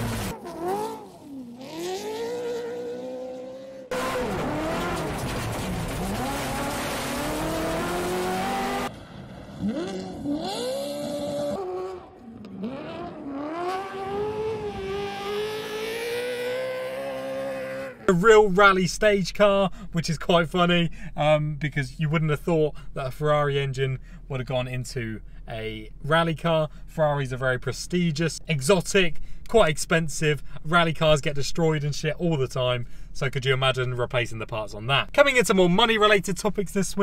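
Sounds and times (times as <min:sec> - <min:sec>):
rally car engine revving: 0:00.0 - 0:08.9, 0:09.5 - 0:18.1
tyres rushing on gravel: 0:04.1 - 0:07.5.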